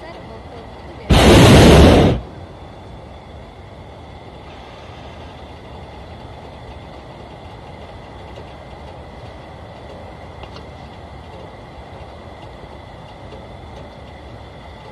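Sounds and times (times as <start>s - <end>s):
steady background noise: 0.0s - 14.9s
propane burner blast: 1.1s - 5.9s.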